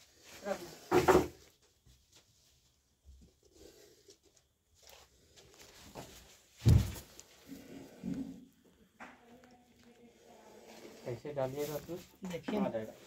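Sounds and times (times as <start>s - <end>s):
rustling and scraping: 0.0s - 8.5s, 10.3s - 13.0s
loud thump: 6.6s - 7.0s.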